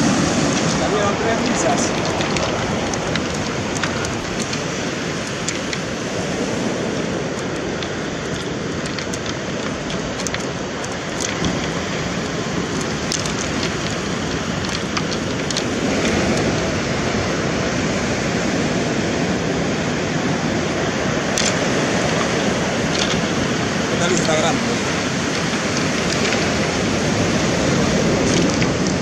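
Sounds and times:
surf on pebble beach: 0.0s - 29.0s
sharp clicks: 1.4s - 5.9s.

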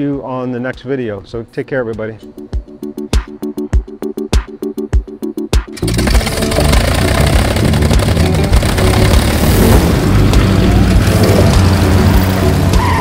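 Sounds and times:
electronic music: 1.8s - 13.0s
propeller aircraft engine drone: 5.7s - 12.4s.

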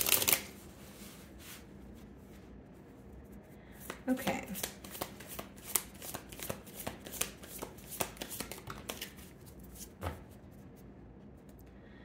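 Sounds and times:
cards being shuffled: 0.0s - 1.6s, 3.8s - 10.4s.

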